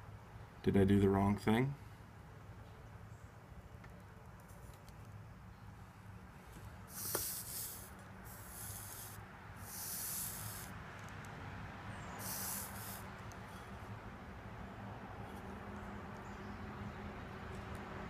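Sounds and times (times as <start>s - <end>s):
soldering iron hissing on sponge: 6.9s - 10.7s, 12.2s - 13.0s.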